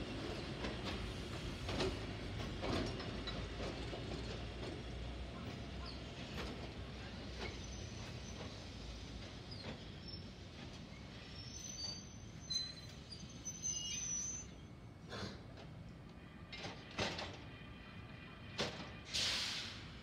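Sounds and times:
electric train rumbling: 0:00.0 - 0:20.0
train wheels clicking over rail joints: 0:00.2 - 0:11.0, 0:15.3 - 0:17.5.

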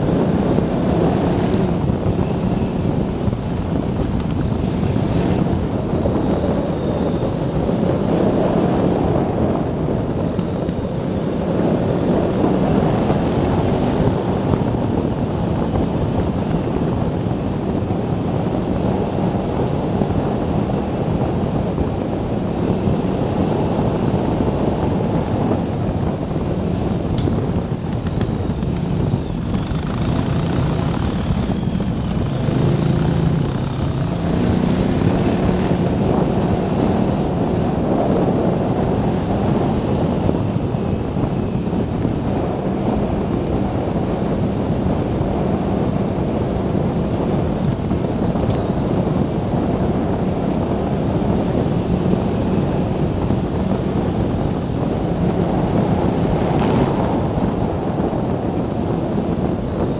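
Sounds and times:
motorcycle engine running: 0:00.0 - 0:59.9
wind buffeting microphone: 0:00.0 - 0:59.9.

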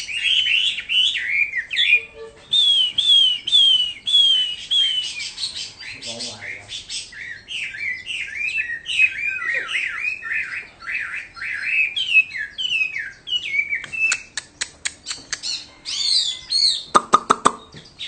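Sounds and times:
bird singing whistled phrases: 0:00.0 - 0:18.0
bird clicks and harsh notes: 0:13.7 - 0:15.7, 0:16.9 - 0:18.0.

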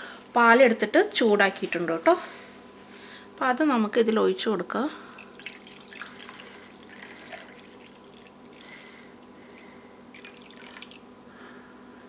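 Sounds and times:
milk pouring into cup: 0:05.0 - 0:11.1.

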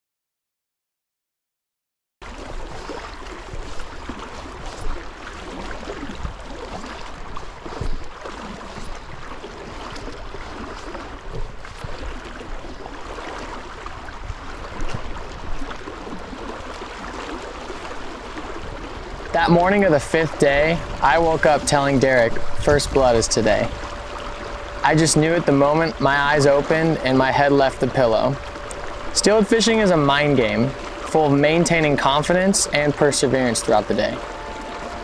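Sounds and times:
river water rushing: 0:02.2 - 0:35.0
water splashes: 0:02.2 - 0:35.0.

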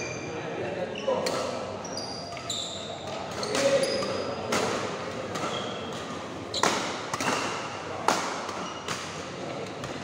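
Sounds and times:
murmur of sports hall: 0:00.0 - 0:10.0
racket hitting shuttlecock: 0:02.3 - 0:10.0.

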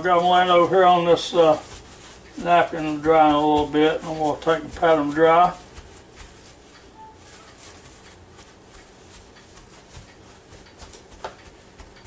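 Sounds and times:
paper towel patting raw chicken: 0:00.0 - 0:12.0.

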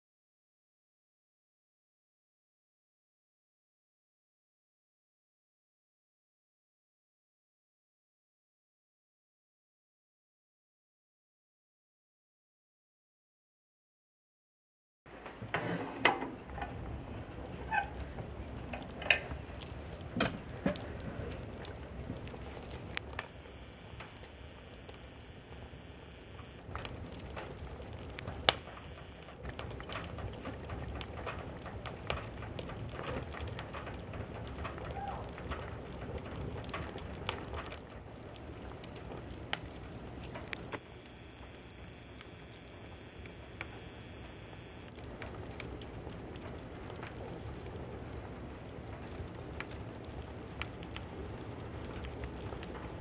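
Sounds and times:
wood fire crackling and popping: 0:16.1 - 0:53.0.

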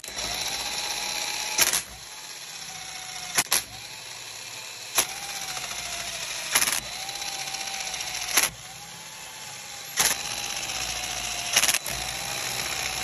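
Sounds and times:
power tool motor whining: 0:00.0 - 0:13.0
sharp click: 0:01.6 - 0:01.9, 0:03.3 - 0:03.7, 0:06.5 - 0:06.9, 0:08.3 - 0:08.6, 0:10.0 - 0:10.2, 0:11.5 - 0:11.9.

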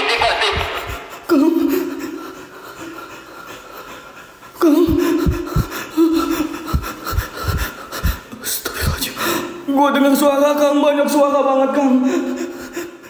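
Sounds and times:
man gasping and breathing heavily: 0:00.8 - 0:09.6
low thumps: 0:04.8 - 0:08.2.

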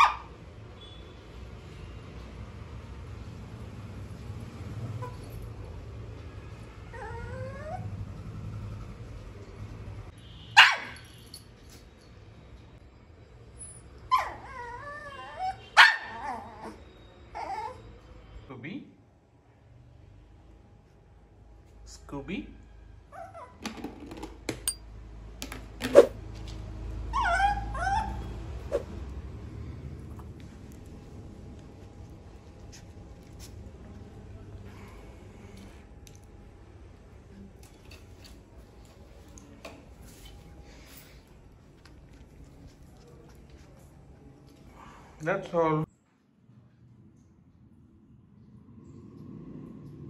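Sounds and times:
puppy yipping: 0:00.0 - 0:00.3, 0:10.6 - 0:11.0, 0:14.1 - 0:16.8, 0:27.1 - 0:28.8
puppy whining: 0:06.8 - 0:08.2, 0:14.1 - 0:18.1, 0:23.1 - 0:23.6, 0:27.1 - 0:28.9.

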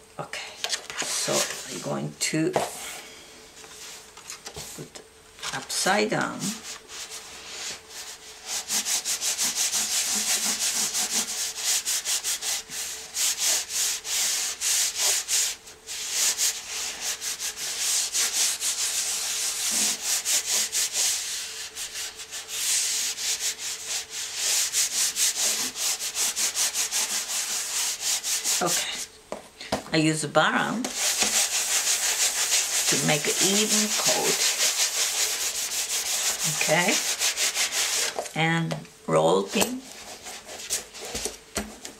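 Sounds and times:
hands rubbing paper: 0:06.4 - 0:29.1, 0:30.8 - 0:38.3, 0:39.8 - 0:41.9.

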